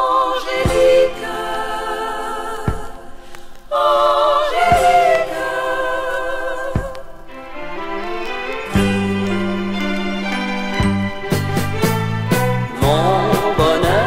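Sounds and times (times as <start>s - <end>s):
choir singing close harmony: 0.0s - 8.9s, 12.7s - 14.0s.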